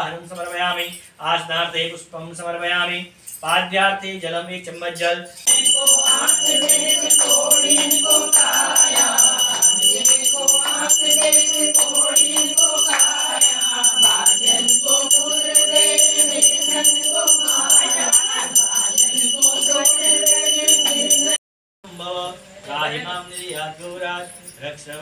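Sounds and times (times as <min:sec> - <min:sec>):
hand bell ringing rapidly: 0:05.4 - 0:21.4.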